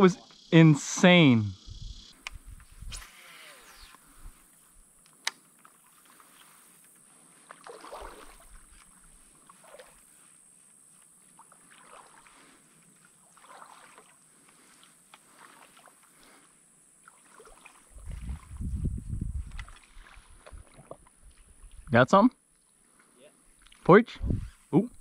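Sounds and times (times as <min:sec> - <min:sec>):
paddle dips and water splashes: 0:05.5 - 0:18.8, 0:19.4 - 0:21.8.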